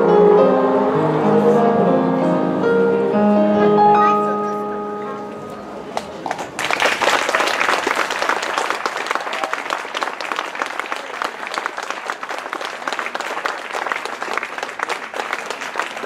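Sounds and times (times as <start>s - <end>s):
audience applauding: 6.0s - 16.0s.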